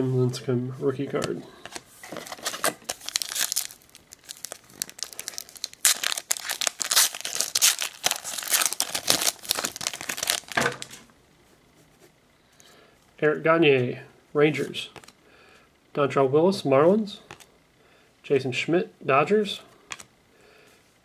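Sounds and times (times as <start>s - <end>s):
wrapper crinkling and tearing: 2.1s - 11.0s.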